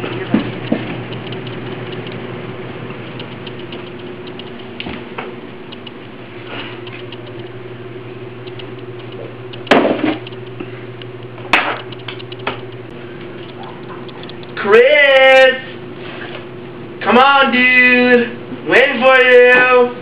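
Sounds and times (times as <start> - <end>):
steady low hum: 0.0 - 20.0
light footstep-like clicks: 2.9 - 6.0, 6.6 - 7.6, 8.4 - 14.6.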